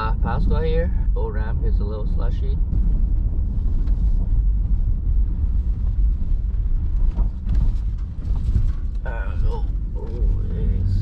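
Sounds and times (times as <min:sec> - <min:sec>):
engine and tyres rumbling: 0:00.0 - 0:11.0.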